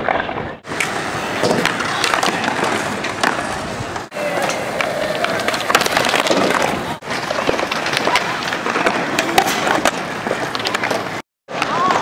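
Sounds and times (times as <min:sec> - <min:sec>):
skateboard clacks: 0:00.0 - 0:12.0
skateboard wheels rolling: 0:00.0 - 0:12.0
people talking: 0:07.9 - 0:10.0, 0:11.6 - 0:12.0.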